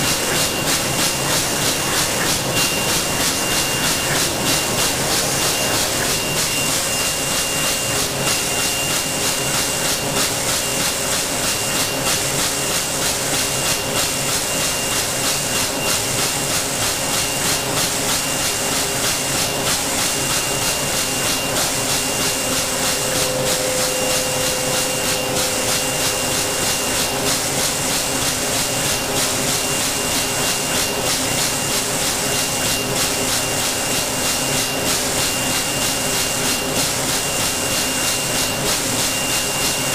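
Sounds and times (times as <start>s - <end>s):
pulsing hissing machine noise: 0.0s - 39.9s
thin high whine: 20.2s - 28.5s.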